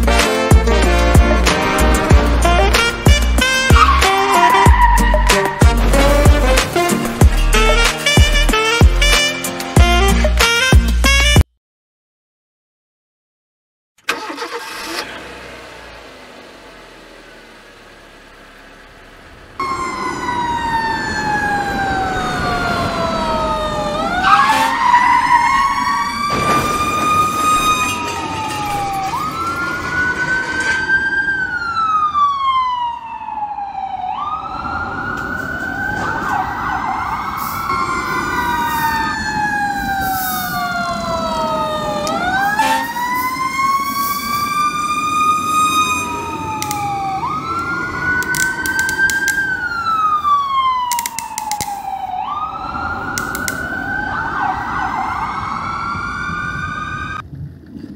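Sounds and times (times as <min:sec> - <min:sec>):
electronic toy siren wailing: 0:03.5 - 0:05.7, 0:19.6 - 0:57.2.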